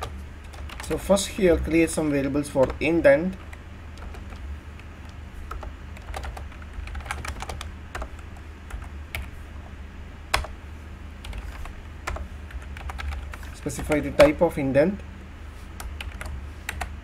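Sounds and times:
steady low hum: 0:00.0 - 0:17.0
typing on computer keyboard: 0:02.6 - 0:09.3, 0:11.2 - 0:14.4, 0:15.8 - 0:16.9.

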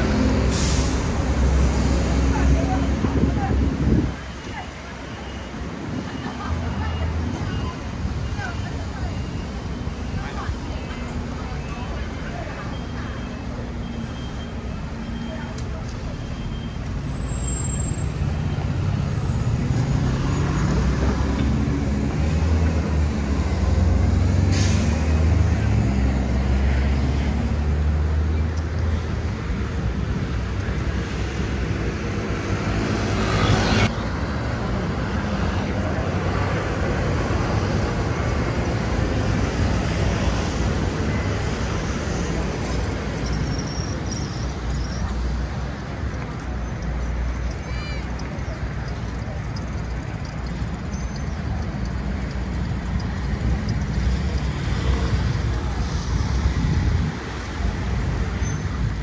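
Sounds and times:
city street traffic: 0:00.0 - 0:59.0
heavy vehicle engine rumble: 0:00.0 - 0:59.0
air brake hiss: 0:00.3 - 0:01.4, 0:24.4 - 0:25.0.

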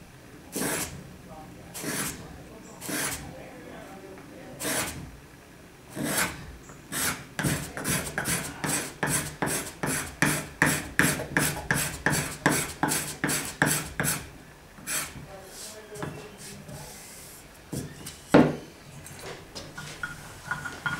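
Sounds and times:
hand file rasping wood: 0:02.8 - 0:03.2, 0:06.0 - 0:15.2.

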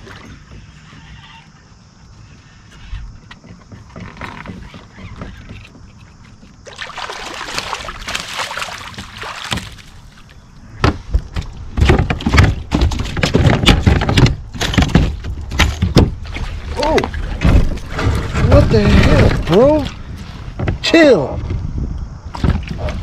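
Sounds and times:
water splashing: 0:06.6 - 0:10.4, 0:16.0 - 0:18.2
fish thumping against kayak: 0:06.7 - 0:18.3.

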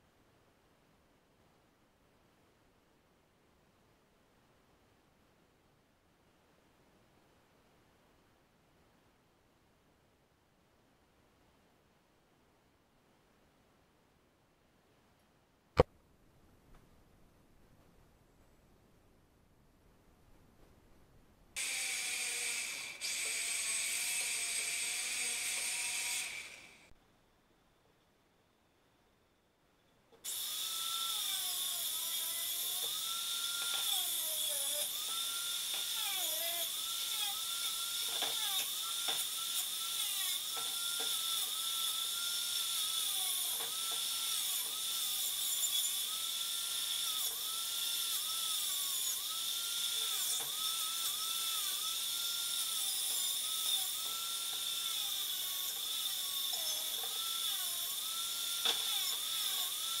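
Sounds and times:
angle grinder grinding metal: 0:21.6 - 0:26.9, 0:30.3 - 1:00.0.

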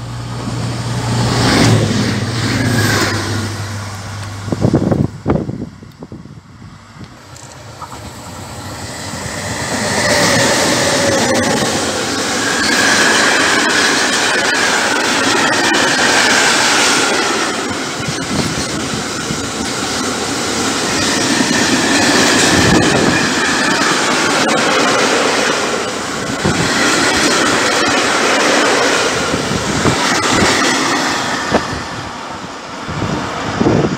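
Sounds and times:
train wheels clattering: 0:07.2 - 0:32.2.

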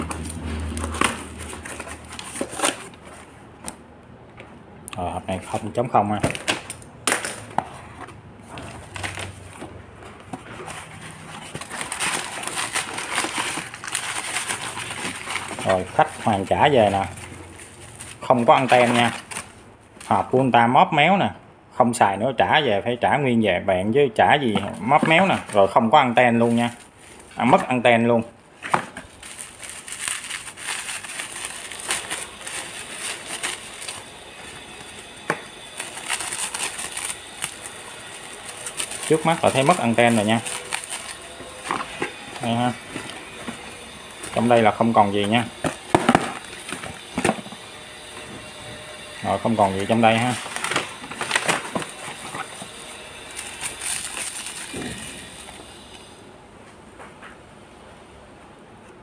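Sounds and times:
bubble wrap crinkling: 0:00.0 - 0:03.4, 0:10.4 - 0:20.3, 0:24.5 - 0:27.7, 0:28.6 - 0:55.9
packing paper rustling: 0:00.0 - 0:03.4, 0:05.3 - 0:20.3, 0:24.4 - 0:27.8, 0:28.6 - 0:55.9.

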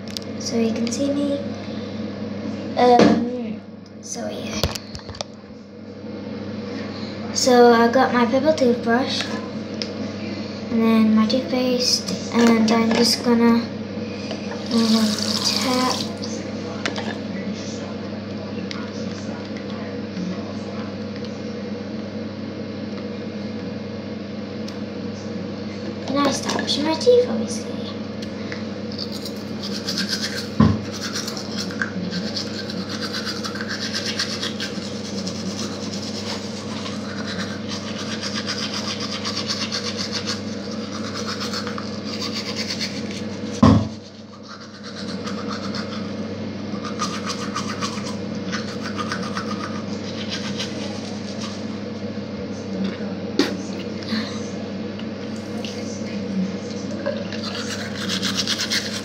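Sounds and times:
toothbrush scrubbing teeth: 0:28.9 - 0:46.2, 0:46.8 - 0:51.7, 0:57.3 - 0:59.0.

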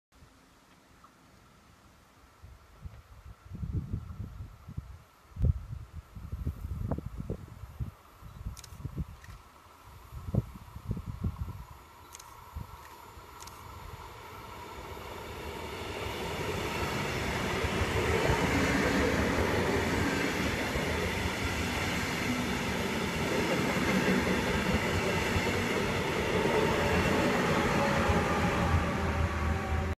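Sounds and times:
train wheels rolling on track: 0:12.1 - 0:29.9.

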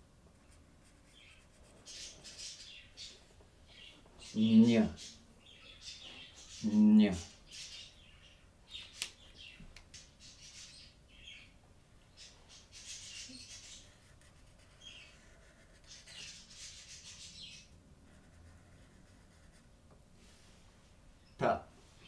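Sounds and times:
marker scratching on paper: 0:00.3 - 0:02.6, 0:12.8 - 0:19.7.

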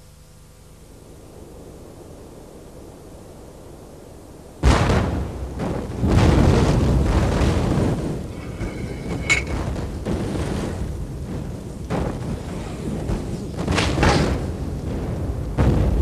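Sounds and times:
loud booms with rumble: 0:01.2 - 0:16.0
sharp crack: 0:04.6 - 0:16.0.

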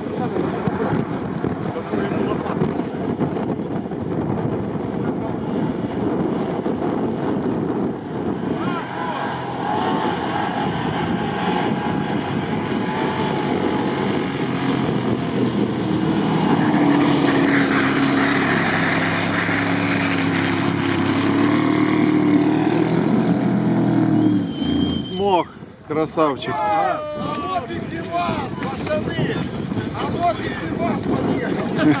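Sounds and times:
engine working hard: 0:00.0 - 0:25.1.

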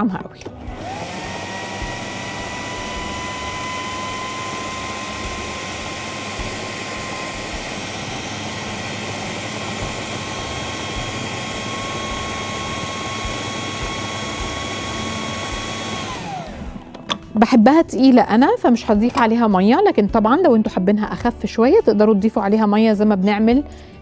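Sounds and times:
food processor motor whine: 0:00.4 - 0:17.2.

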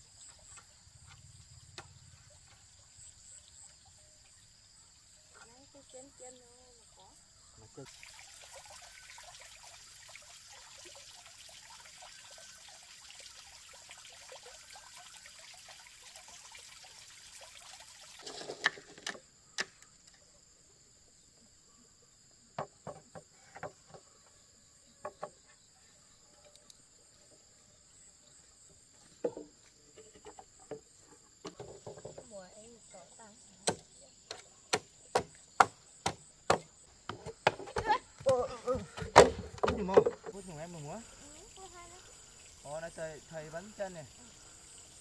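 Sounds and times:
insects chirring: 0:00.0 - 0:45.0
bamboo poles knocking: 0:22.6 - 0:24.0, 0:29.2 - 0:32.3, 0:33.7 - 0:40.4.

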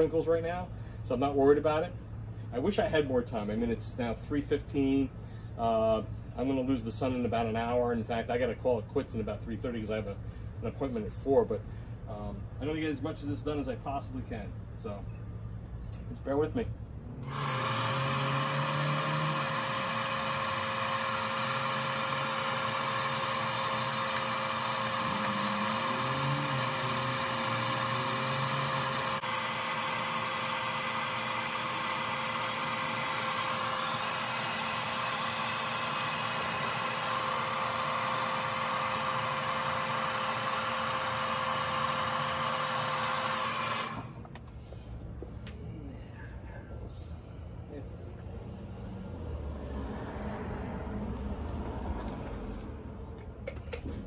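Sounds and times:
hair dryer running: 0:17.2 - 0:44.4.

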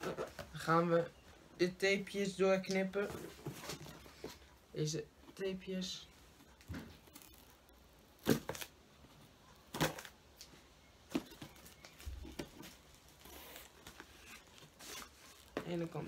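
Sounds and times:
box and plastic rustling: 0:03.0 - 0:04.5, 0:11.1 - 0:16.0.

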